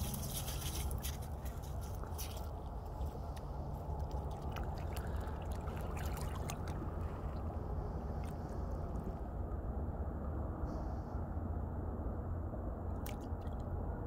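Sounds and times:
dog paws splashing in water: 0:00.0 - 0:07.6
steady low rumble: 0:00.0 - 0:14.0.

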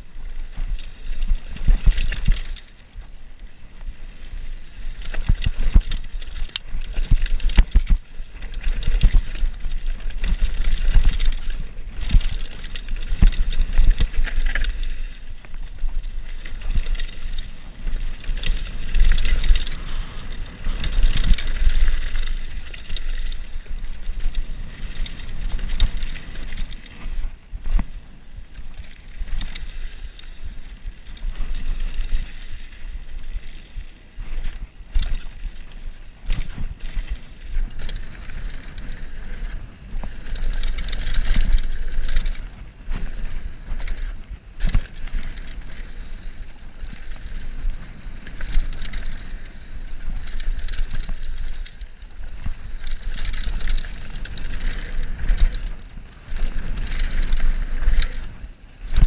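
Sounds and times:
bike knocking and rattling: 0:00.0 - 0:59.0
bike tyres rolling on gravel: 0:00.0 - 0:59.0.

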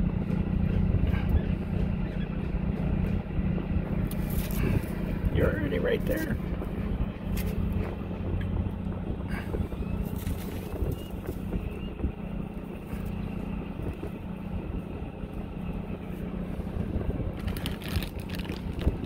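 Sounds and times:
boat machinery humming: 0:00.0 - 0:19.0
rustling noise: 0:16.7 - 0:19.0.

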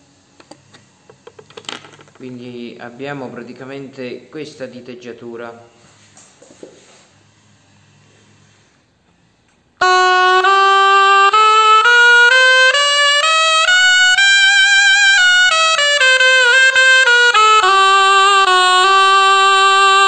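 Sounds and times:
shawm playing a scale: 0:09.8 - 0:20.0.

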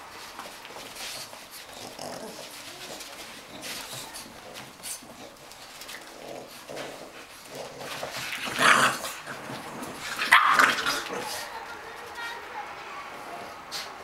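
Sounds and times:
dogs growling and grunting: 0:01.6 - 0:11.5.

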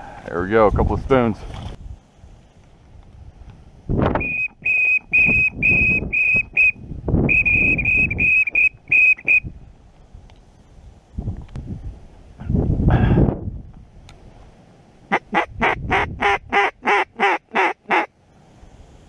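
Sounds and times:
duck whistle call toots: 0:04.2 - 0:09.5, 0:15.1 - 0:18.1.

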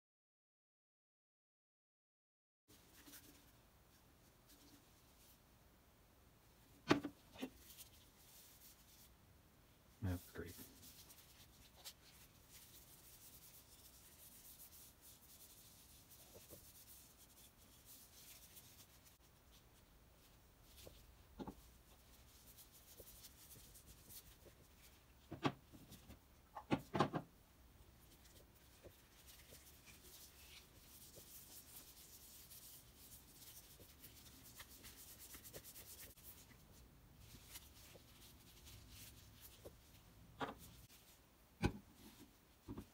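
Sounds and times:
cloth rubbing on wood: 0:10.2 - 0:19.6, 0:28.0 - 0:41.2.

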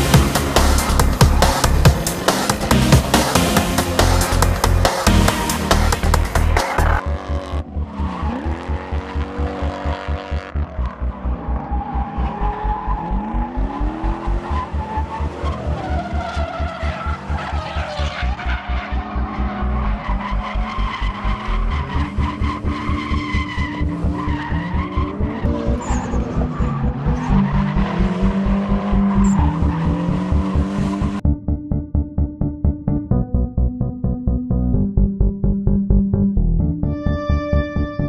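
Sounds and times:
music with a fast beat: 0:00.0 - 0:07.0
car engines revving: 0:00.0 - 0:31.2.

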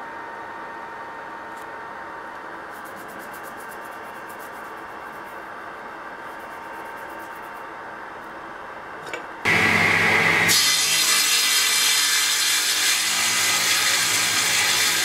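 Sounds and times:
faint constant hum: 0:00.0 - 0:09.5
workshop hiss: 0:09.5 - 0:15.0.

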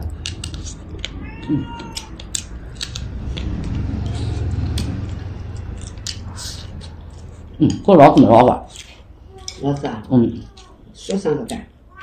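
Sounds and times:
chopsticks clicking on bowl: 0:00.0 - 0:01.2, 0:01.8 - 0:06.9
cat meowing: 0:01.1 - 0:02.4.

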